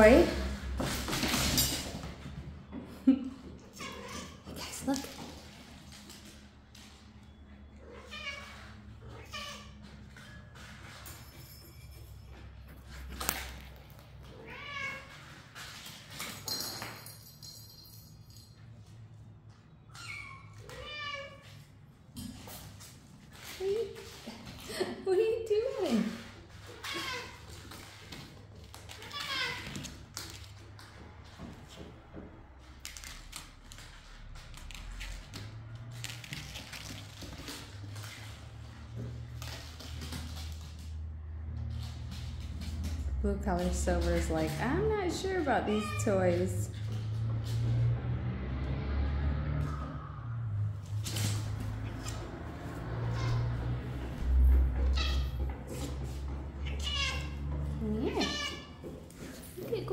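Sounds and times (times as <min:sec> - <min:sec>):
kittens batting toys on tiles: 0:00.0 - 0:48.0, 0:50.4 - 0:59.9
cat meowing: 0:03.7 - 0:04.5, 0:07.8 - 0:09.7, 0:14.3 - 0:15.1, 0:56.6 - 0:57.4, 0:58.0 - 0:58.8.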